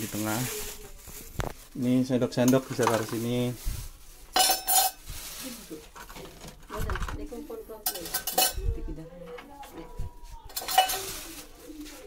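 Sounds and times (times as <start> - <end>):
cutlery clattering into a cup: 2.4 - 3.2, 4.3 - 5.0, 7.8 - 8.7, 10.5 - 11.5.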